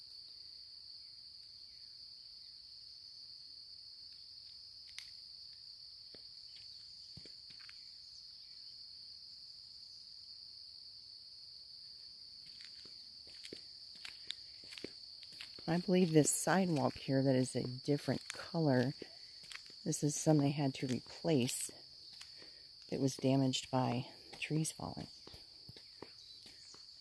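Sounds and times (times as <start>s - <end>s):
insects trilling: 0.0s - 27.0s
faint ticks: 4.1s - 5.2s.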